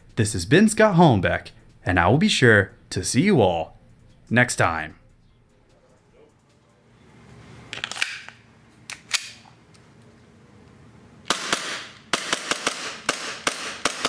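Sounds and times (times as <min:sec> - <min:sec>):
airsoft pistol shots: 0:11.3 - 0:14.0.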